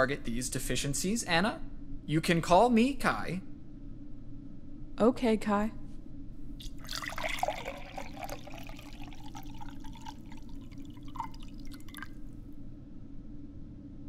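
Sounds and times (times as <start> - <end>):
low steady hum: 0.0 - 14.0
drips: 6.6 - 12.3
juice pouring into glass: 6.6 - 12.4.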